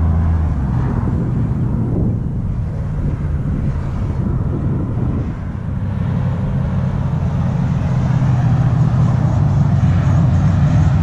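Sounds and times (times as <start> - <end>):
truck exhaust rumble: 0.0 - 11.0.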